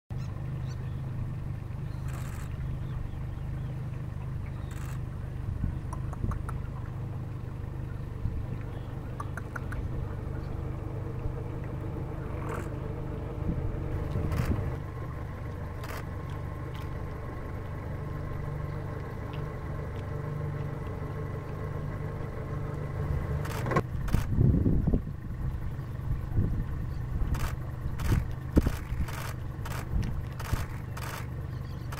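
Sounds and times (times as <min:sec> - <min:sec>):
engine idling: 0:00.1 - 0:31.9
sharp clicks: 0:04.6 - 0:05.0, 0:05.9 - 0:06.7, 0:08.6 - 0:09.9, 0:27.3 - 0:31.9.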